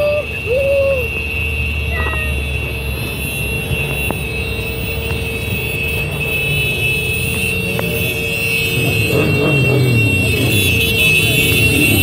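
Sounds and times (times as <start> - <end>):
motorcycle engines running: 1.9 - 12.0.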